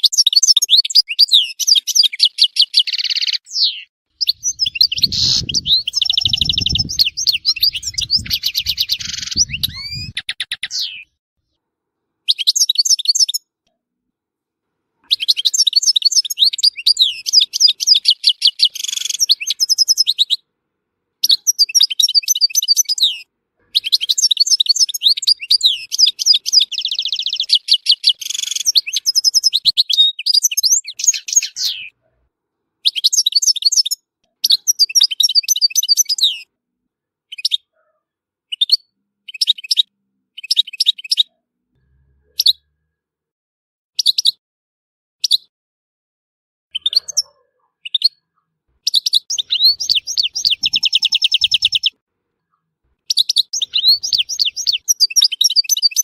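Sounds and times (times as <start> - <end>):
goldfinch singing: 0.0 - 11.1, 15.1 - 20.4, 21.2 - 31.9, 48.8 - 52.0, 53.1 - 56.0.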